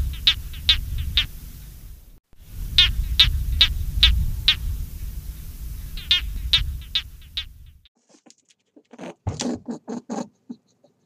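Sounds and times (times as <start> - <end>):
high rasping animal chirps: 0.0 - 1.6, 2.8 - 4.7, 5.9 - 7.6
low rumble: 0.0 - 7.9.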